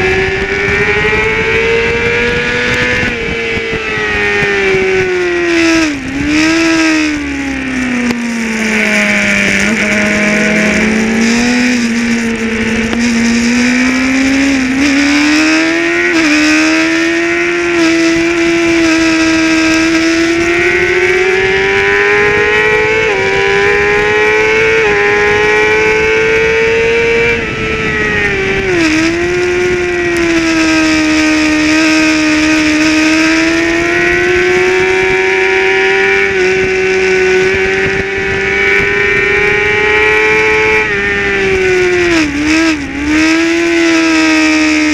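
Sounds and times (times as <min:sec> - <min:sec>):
racing motorcycle engine revving: 0:00.0 - 0:44.9
wind rush: 0:00.0 - 0:44.9.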